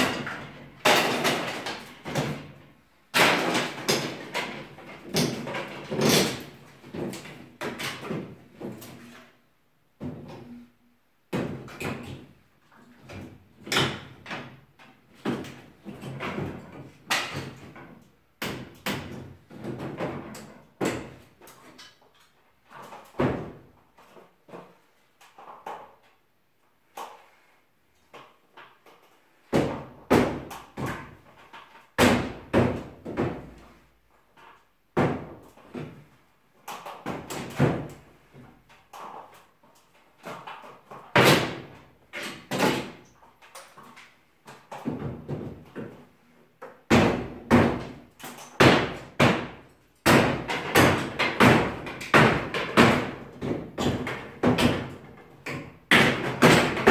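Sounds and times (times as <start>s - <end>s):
pry bar striking wooden battens: 0.0s - 8.7s, 46.9s - 56.9s.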